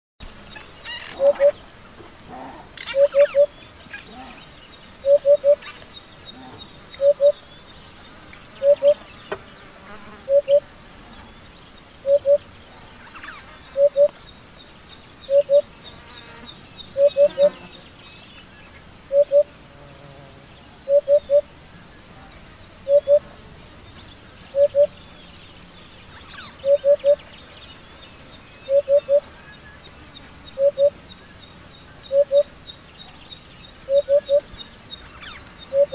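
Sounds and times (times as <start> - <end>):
hoopoe hooting: 1.0 - 1.6, 2.2 - 5.7, 6.3 - 7.4, 8.6 - 9.0, 10.3 - 10.6, 12.0 - 12.4, 13.8 - 14.1, 15.3 - 15.7, 17.0 - 17.7, 19.1 - 19.5, 20.9 - 21.5, 22.2 - 23.3, 24.5 - 25.0, 26.6 - 27.2, 28.7 - 29.3, 30.0 - 31.0, 32.1 - 32.5, 33.9 - 34.5.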